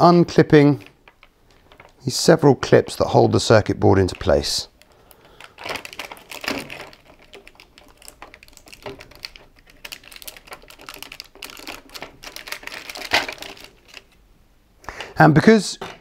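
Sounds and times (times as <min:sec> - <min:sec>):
plastic clips clicking and creaking: 0:00.7 - 0:02.0, 0:04.0 - 0:14.2.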